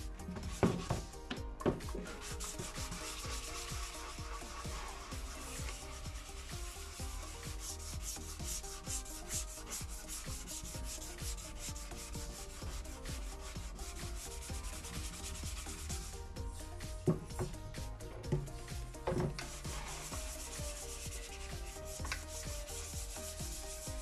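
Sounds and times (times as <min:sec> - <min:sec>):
sandpaper rubbing on plastic: 0:02.0 - 0:16.2, 0:19.4 - 0:24.0.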